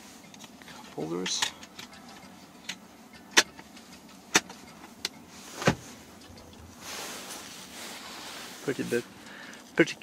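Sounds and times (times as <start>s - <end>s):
steady hiss: 5.3s - 9.9s.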